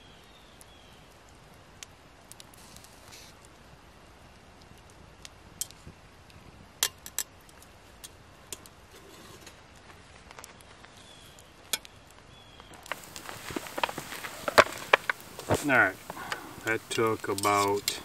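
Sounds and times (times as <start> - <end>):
metal tongs clinking on pots: 17.0 - 18.0.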